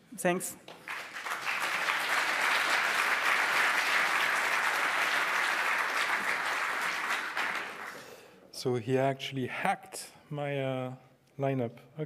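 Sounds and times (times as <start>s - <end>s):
audience applauding: 0.7s - 8.2s.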